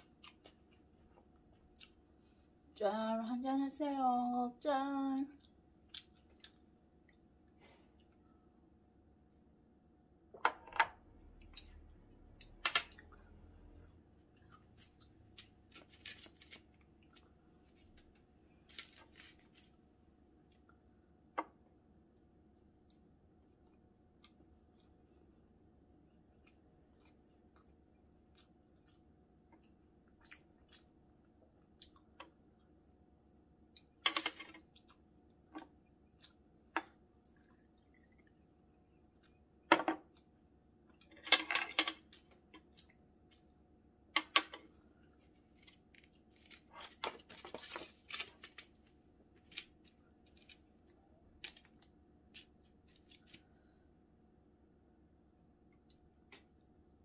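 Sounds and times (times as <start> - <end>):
chewing and mouth noises: 0.0 - 2.1, 5.4 - 7.3, 13.0 - 15.5, 26.4 - 32.8, 35.8 - 36.5, 37.2 - 40.3.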